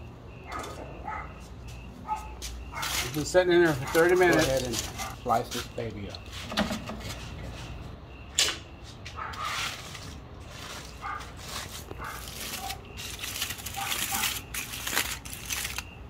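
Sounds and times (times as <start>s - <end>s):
aluminum foil crinkling: 2.8s - 5.8s, 9.8s - 16.0s.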